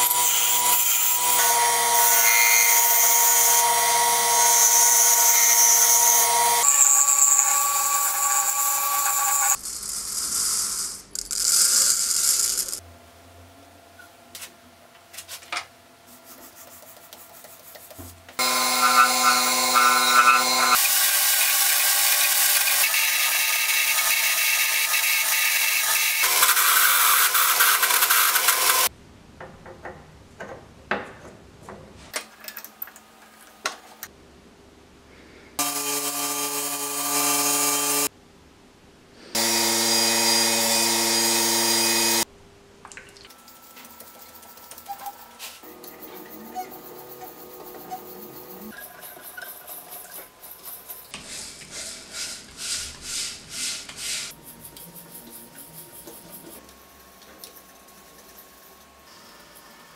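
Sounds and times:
wood lathe motor whine: 0:00.0 - 0:09.6, 0:18.4 - 0:28.9, 0:39.4 - 0:42.2
tool hissing on spinning wood: 0:46.1 - 0:56.6.

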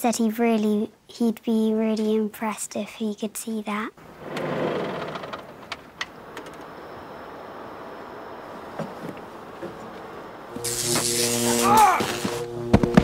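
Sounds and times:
tractor engine running: 0:04.0 - 0:07.4.

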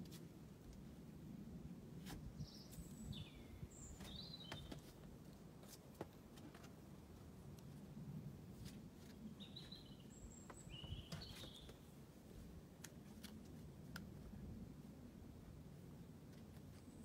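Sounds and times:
faint outdoor ambience: 0:00.0 - 0:17.0
bird chirps: 0:09.4 - 0:11.8.

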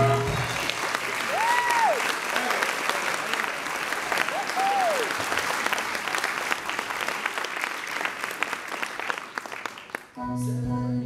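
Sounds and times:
music with held notes: 0:00.0 - 0:00.7, 0:10.2 - 0:11.0
audience applauding: 0:00.0 - 0:10.2.

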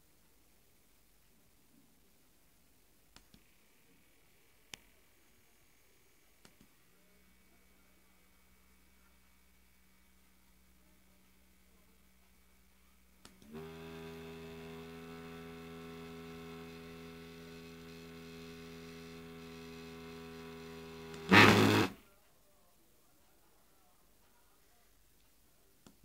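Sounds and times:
small motor whining: 0:13.5 - 0:22.0
loud harsh burst: 0:20.3 - 0:22.0.

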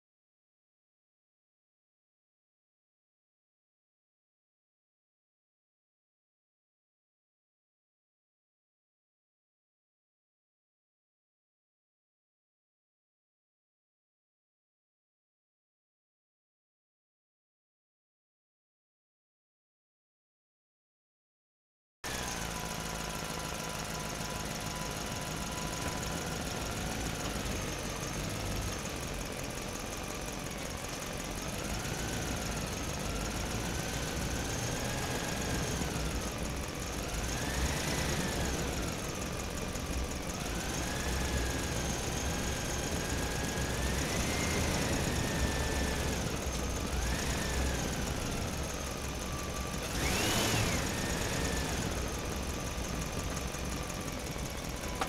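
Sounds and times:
low engine-like rumble: 0:22.1 - 0:50.0, 0:50.6 - 0:55.0
electric motors whining: 0:22.1 - 0:55.0.

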